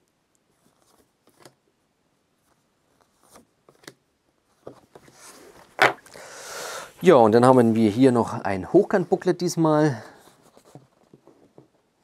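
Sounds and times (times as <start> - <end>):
paper rustle: 0.5 - 1.6.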